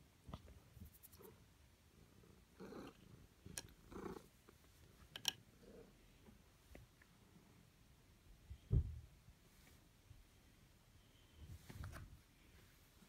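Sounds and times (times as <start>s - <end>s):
cat purring: 1.0s - 4.6s.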